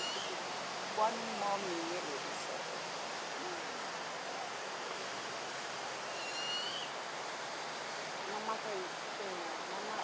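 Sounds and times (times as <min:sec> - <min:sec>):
owl fledgling begging call: 0:00.0 - 0:00.3, 0:06.1 - 0:06.9.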